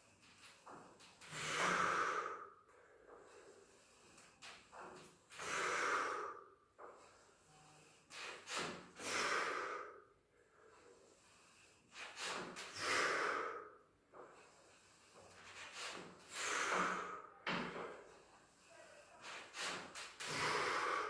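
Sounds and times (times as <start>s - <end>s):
man breathing hard: 1.2s - 4.3s, 5.3s - 7.2s, 8.9s - 15.2s, 15.9s - 18.6s, 19.6s - 21.0s.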